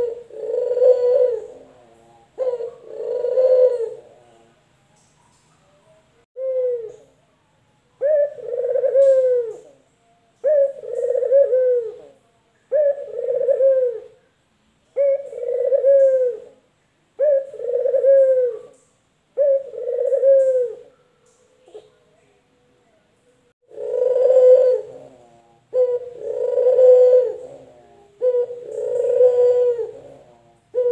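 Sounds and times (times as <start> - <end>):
doves cooing: 0.0 - 5.1, 6.4 - 7.0, 8.0 - 9.8, 10.4 - 14.2, 15.0 - 16.6, 17.2 - 21.0, 23.7 - 30.9.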